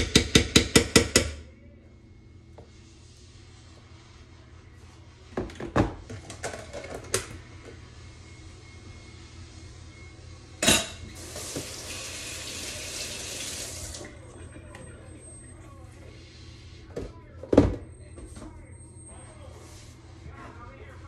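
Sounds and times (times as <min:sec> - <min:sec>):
utensil knocking on pans: 0:00.0 - 0:01.4.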